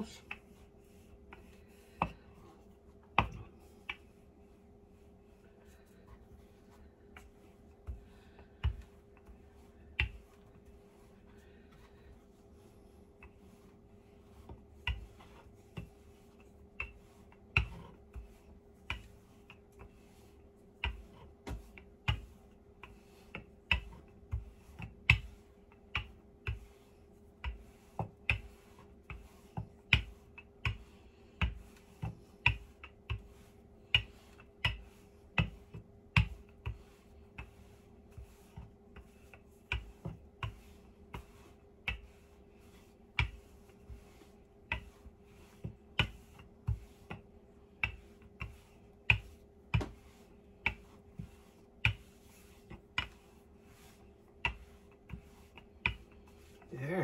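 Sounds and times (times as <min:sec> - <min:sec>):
rolling pin knocking on wooden board: 0:07.1 - 0:10.7, 0:14.4 - 0:20.0, 0:20.7 - 0:26.8, 0:27.4 - 0:56.7.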